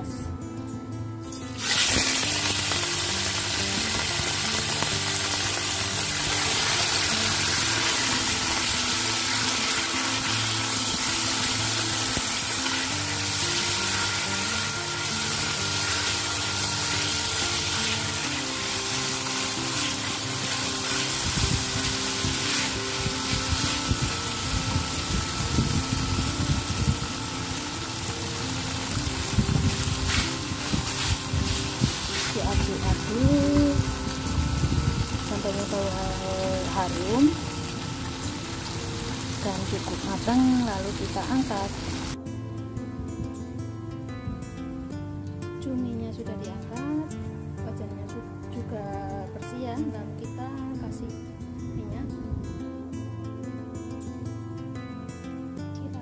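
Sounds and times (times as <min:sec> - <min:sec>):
soft background music: 0:00.0 - 0:56.0
squid sizzling in hot oil: 0:01.3 - 0:42.2.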